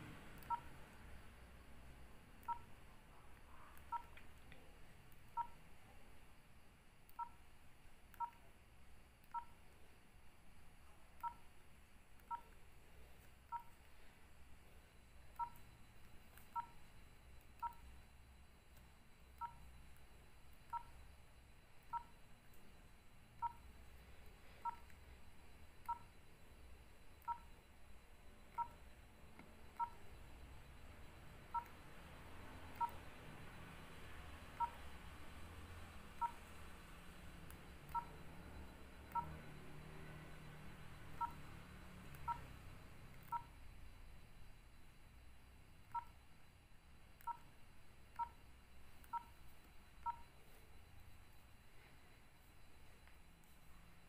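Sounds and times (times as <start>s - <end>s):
two-tone keypad beeps: 0.4s - 0.9s, 2.4s - 2.7s, 3.5s - 4.2s, 5.2s - 5.6s, 7.1s - 7.4s, 8.2s - 8.5s, 9.3s - 9.6s, 11.2s - 11.5s, 12.2s - 12.6s, 13.5s - 13.8s, 15.0s - 44.7s, 45.8s - 46.4s, 47.1s - 54.0s.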